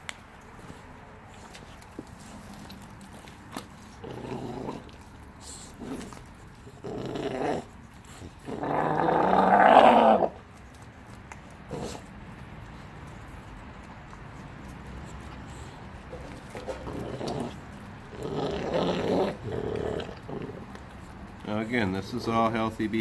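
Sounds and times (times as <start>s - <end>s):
puppy growling: 3.5s - 10.5s, 11.6s - 12.2s, 13.9s - 21.6s.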